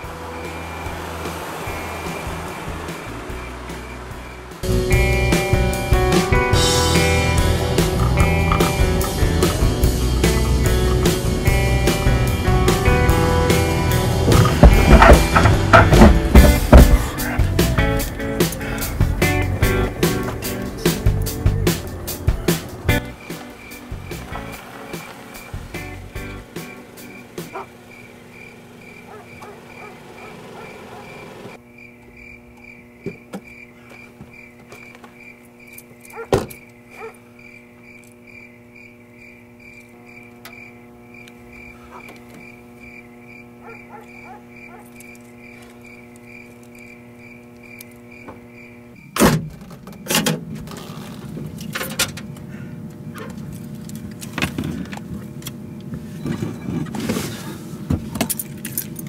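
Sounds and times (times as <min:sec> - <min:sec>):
crickets chirping: 0:00.0 - 0:51.2
clunks and knocks: 0:14.1 - 0:17.3, 0:49.2 - 0:52.3.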